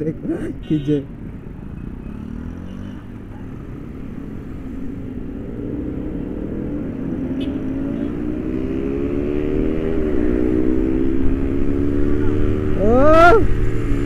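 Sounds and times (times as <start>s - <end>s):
motorcycle engine rev: 4.6s - 14.0s.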